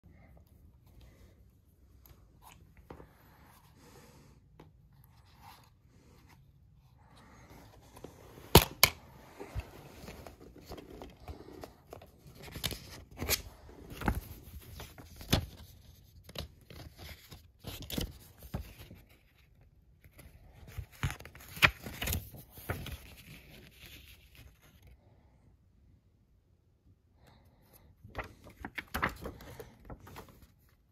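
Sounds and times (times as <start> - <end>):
pages rustling: 4.9 - 24.9, 27.8 - 30.9.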